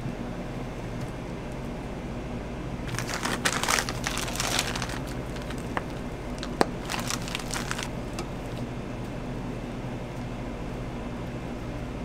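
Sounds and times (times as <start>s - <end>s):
steady low hum: 0.4s - 12.0s
piping bag rustling: 2.9s - 8.6s.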